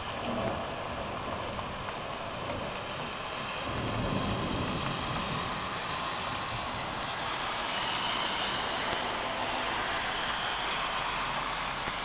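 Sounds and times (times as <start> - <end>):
low thunder rumble: 0.0 - 8.1
rain hissing: 0.0 - 12.0
traffic on wet street: 0.0 - 12.0.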